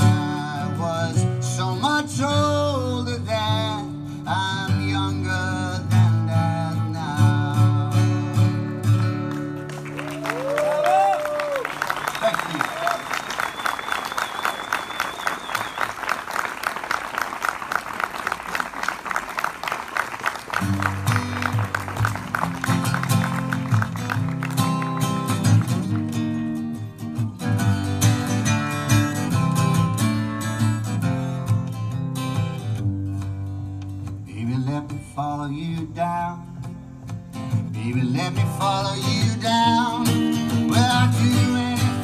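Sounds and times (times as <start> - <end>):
acoustic guitar chords: 0.0 - 9.9, 20.6 - 42.0.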